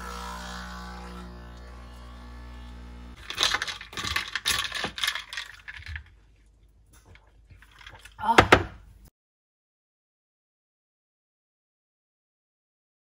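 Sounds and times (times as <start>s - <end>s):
coffee machine pump buzzing: 0.0s - 4.1s
light clinking and rattling: 3.2s - 8.2s.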